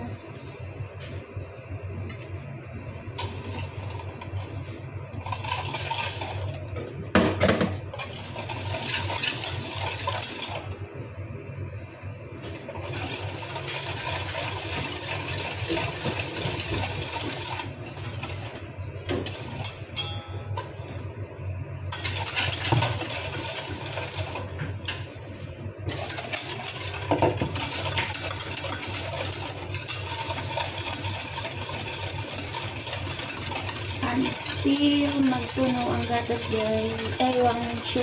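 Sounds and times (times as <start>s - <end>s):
whisk clinking and scraping metal bowl: 5.2s - 6.6s, 7.9s - 10.7s, 12.7s - 18.6s, 21.9s - 25.0s, 25.9s - 38.0s.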